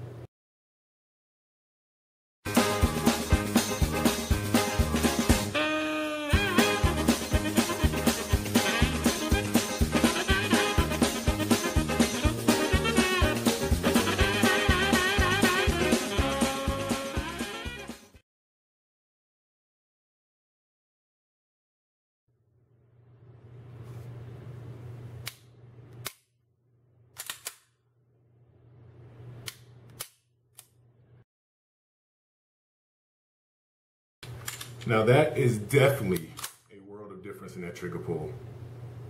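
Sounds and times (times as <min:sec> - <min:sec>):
background music with steady beat: 0:02.5 - 0:18.2
metallic clicks of pistol action: 0:27.2 - 0:27.6.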